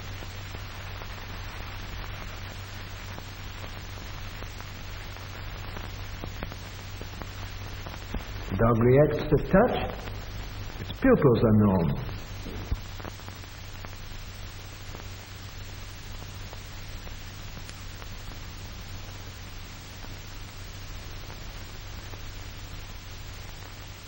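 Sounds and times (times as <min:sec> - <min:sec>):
faint crackles: 0:00.0 - 0:24.0
film soundtrack hiss: 0:00.0 - 0:24.0
low hum: 0:08.1 - 0:13.0.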